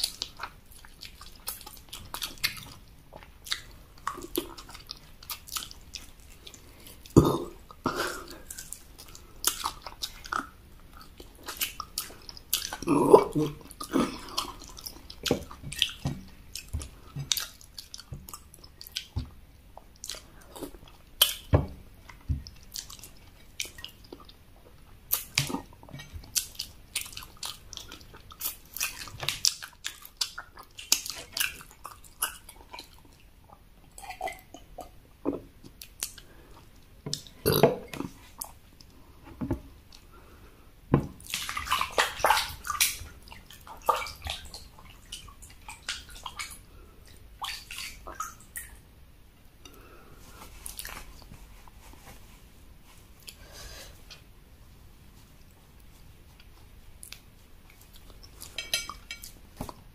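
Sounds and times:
gulping and slurping: 0:00.0 - 0:36.6
chewing and mouth smacks: 0:00.0 - 0:39.0, 0:41.1 - 0:48.8, 0:49.6 - 0:51.8, 0:55.4 - 0:59.9.

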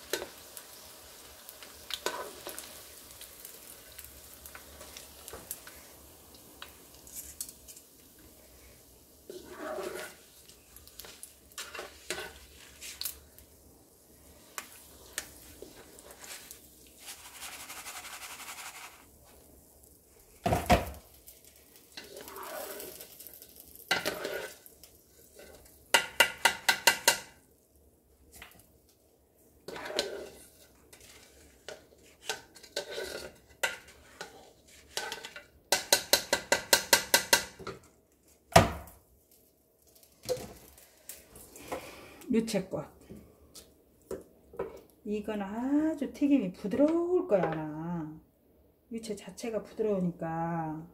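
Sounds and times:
skimmer scraping metal pan: 0:09.3 - 0:10.2, 0:22.0 - 0:23.0, 0:23.9 - 0:24.6, 0:29.7 - 0:31.4
skimmer tapping on pan: 0:25.9 - 0:27.3.

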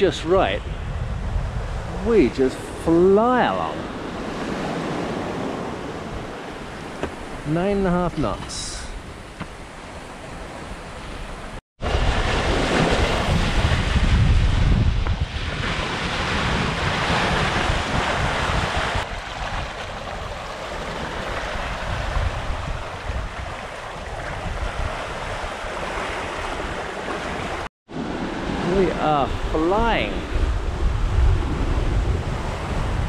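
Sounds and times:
wind buffeting microphone: 0:00.0 - 0:07.5, 0:08.2 - 0:33.0
water rushing and foaming: 0:15.2 - 0:30.8.

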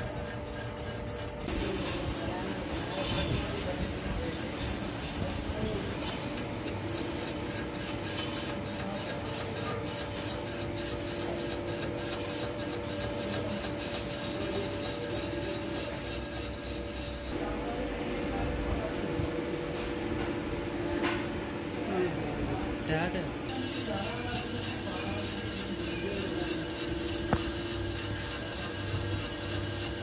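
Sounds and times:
high-pitched cutting squeal: 0:00.0 - 0:17.4, 0:23.5 - 0:30.0
low machine hum: 0:00.0 - 0:30.0.

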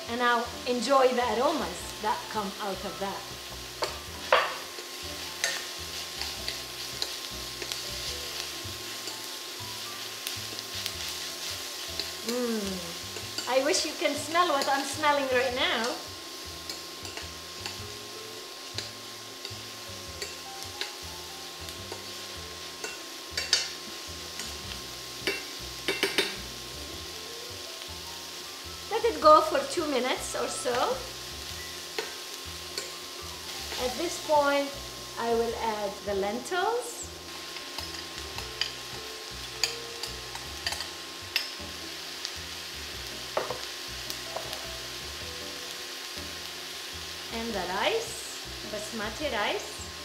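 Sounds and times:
onions sizzling in oil: 0:00.0 - 0:50.0
metal spoon clinking against pan: 0:05.4 - 0:07.8, 0:16.6 - 0:17.8, 0:20.2 - 0:21.0, 0:22.8 - 0:23.8, 0:25.2 - 0:26.4, 0:39.6 - 0:41.6.

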